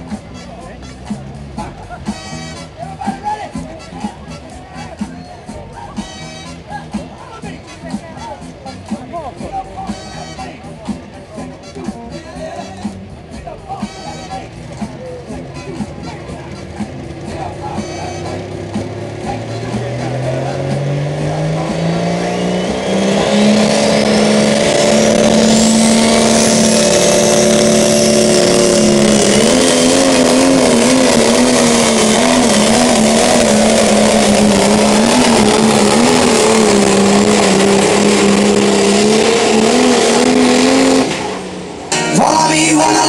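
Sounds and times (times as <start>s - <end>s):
diesel engine at full throttle: 0.0s - 43.0s
turbo whistle: 22.2s - 23.4s.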